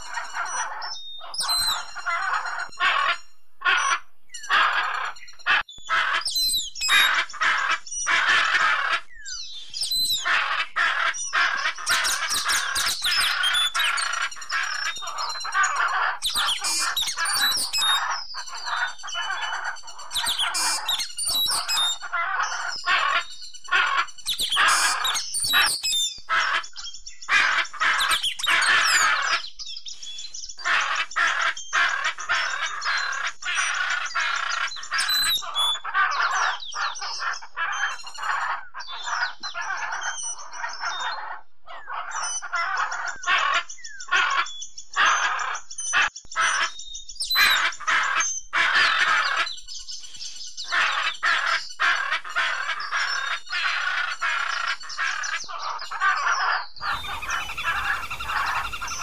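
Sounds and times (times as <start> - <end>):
parrots calling: 0.0 - 9.2, 9.9 - 26.7, 27.3 - 29.4, 50.7 - 59.0.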